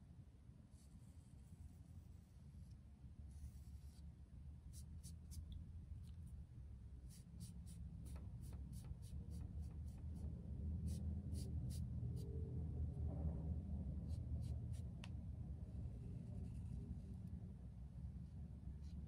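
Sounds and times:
low room hum: 0.0s - 19.0s
foam brush tapping on paper: 7.1s - 10.3s.

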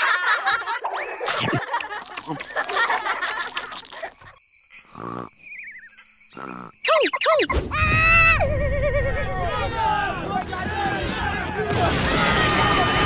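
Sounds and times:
cartoon monster cackling laughter: 0.0s - 4.3s, 8.4s - 9.4s.

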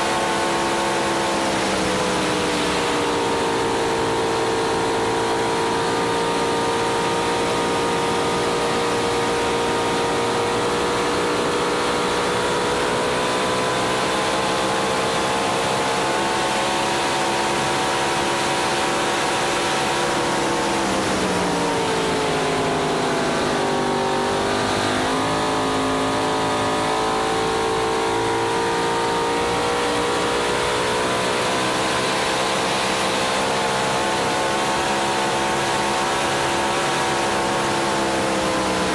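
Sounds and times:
rush of wind and water: 0.0s - 25.7s
boat engine running hard: 0.0s - 38.9s.

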